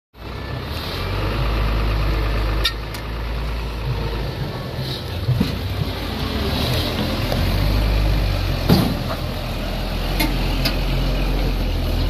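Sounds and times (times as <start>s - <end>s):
truck diesel engine rumbling: 0.2s - 12.0s
sharp clunk: 8.7s - 9.2s.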